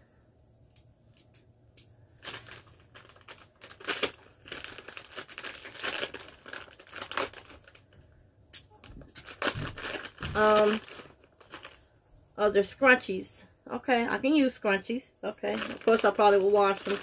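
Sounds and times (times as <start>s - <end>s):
plastic wrapping crinkling and tearing: 2.1s - 12.0s, 15.4s - 17.0s.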